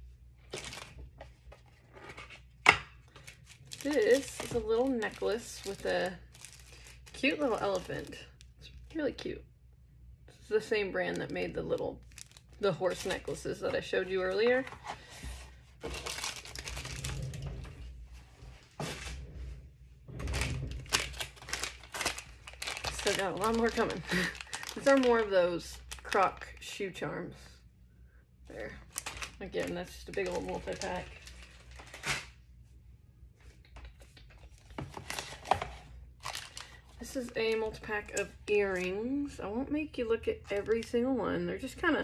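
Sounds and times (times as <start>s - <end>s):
plastic bags crinkling: 0.5s - 1.8s, 3.1s - 9.0s, 10.9s - 13.6s, 15.8s - 17.5s, 20.2s - 26.6s, 28.5s - 32.4s, 34.4s - 38.9s.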